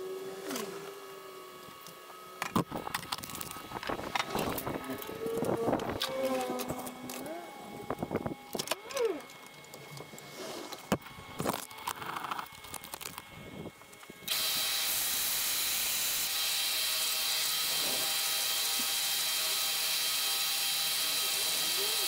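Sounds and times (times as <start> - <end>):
power tool whining: 0.0 - 22.0.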